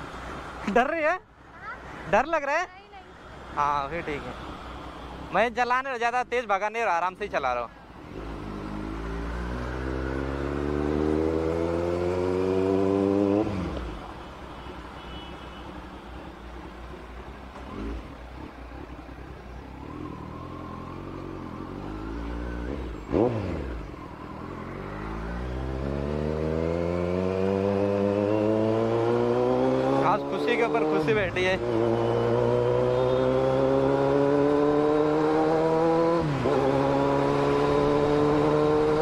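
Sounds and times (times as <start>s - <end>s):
motorcycle engine revving: 8.0s - 14.0s, 17.5s - 19.1s, 19.7s - 39.0s.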